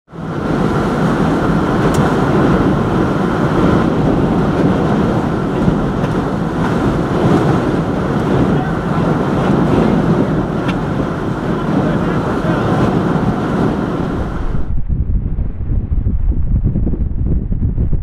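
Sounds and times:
strong wind buffeting microphone: 0.1 - 18.0.

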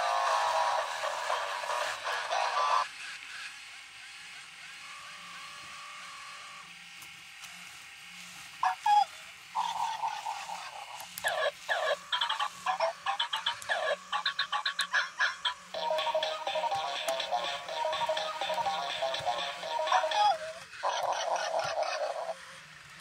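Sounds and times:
bark-like electronic blips: 8.6 - 22.4
robotic toy dog chirps and beeps: 8.6 - 22.4.

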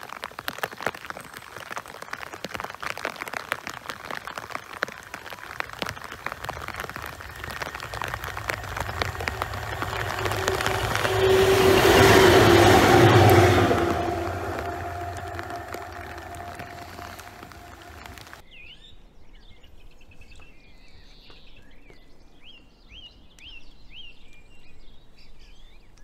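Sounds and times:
rain pattering: 0.0 - 18.4
diesel locomotive passing: 5.8 - 18.4.

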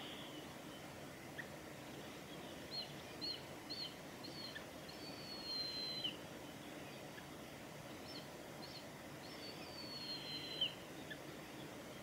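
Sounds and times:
eagle whistling calls: 2.7 - 6.2, 8.0 - 11.2.

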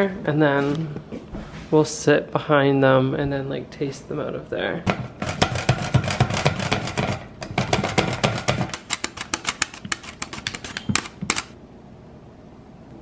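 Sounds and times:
mandoline slicer clacking strokes: 4.9 - 11.6.

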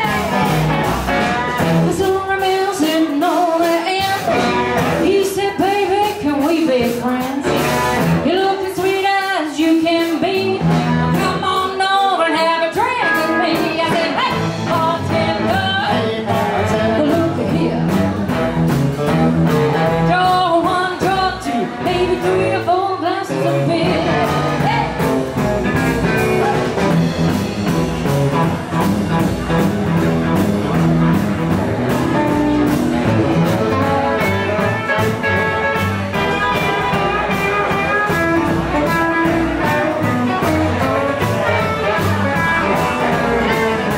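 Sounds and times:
person singing: 0.0 - 18.1
rock and roll band playing: 0.0 - 43.9
saxophone: 33.3 - 43.9.

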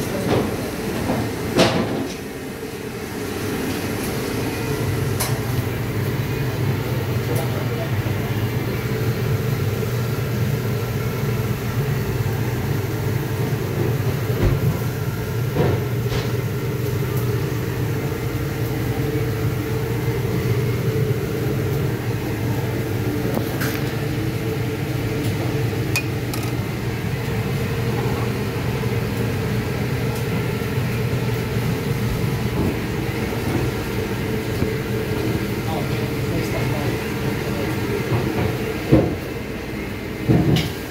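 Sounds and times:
low mechanical hum: 0.0 - 40.9.

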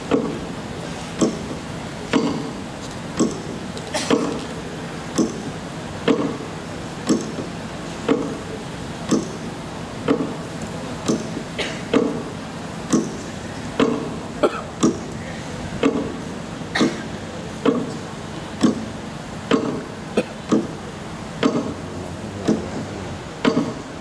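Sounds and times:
background hiss: 0.0 - 24.0
sharp knocks: 21.4 - 21.8, 22.4 - 23.8.

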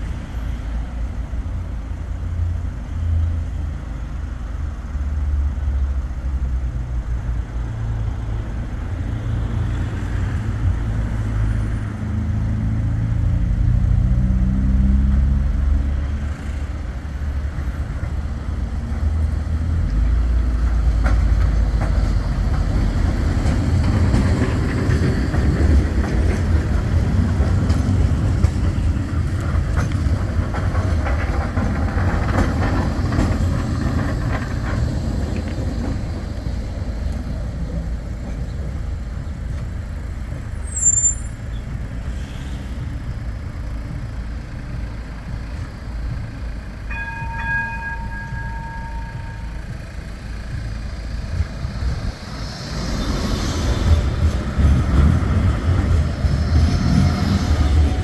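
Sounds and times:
tram rumbling past: 0.0 - 58.0
steady tone: 46.9 - 51.4.

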